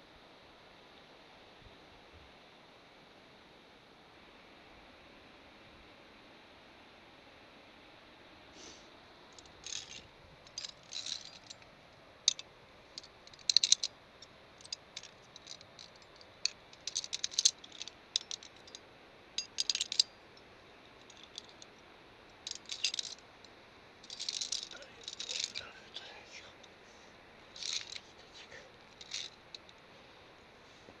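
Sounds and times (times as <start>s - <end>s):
carabiners clinking on metal cable: 9.4s - 18.8s, 19.4s - 20.1s, 21.0s - 21.8s, 22.4s - 23.3s, 24.0s - 26.2s, 27.5s - 29.8s.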